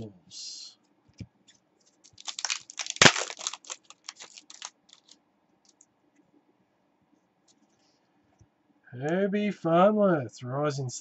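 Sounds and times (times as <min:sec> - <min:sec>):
trading cards being shuffled: 0:01.8 - 0:05.8.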